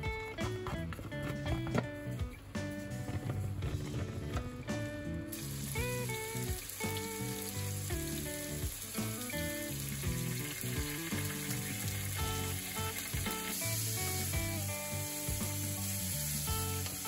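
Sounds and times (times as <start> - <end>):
background music: 0.0 - 17.0
meat sizzling in a frying pan: 5.3 - 17.0.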